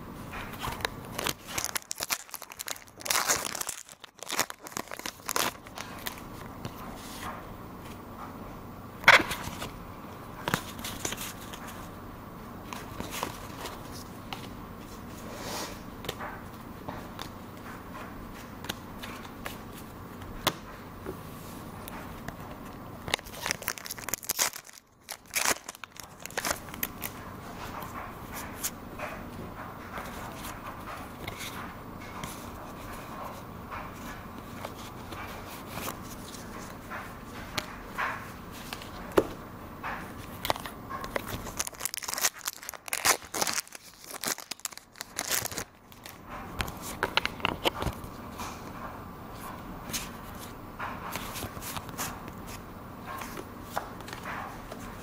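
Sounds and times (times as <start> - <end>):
trading cards flicking and snapping: 21.8 - 27.2, 30.0 - 48.6.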